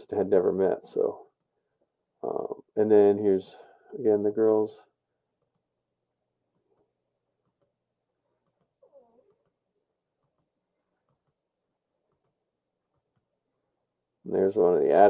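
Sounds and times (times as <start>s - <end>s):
faint clicks: 8.4s - 9.6s, 12.1s - 13.3s.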